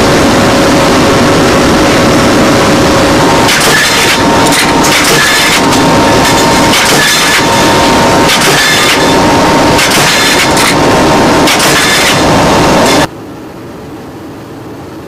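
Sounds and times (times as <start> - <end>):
turboprop engines droning: 0.0 - 15.0.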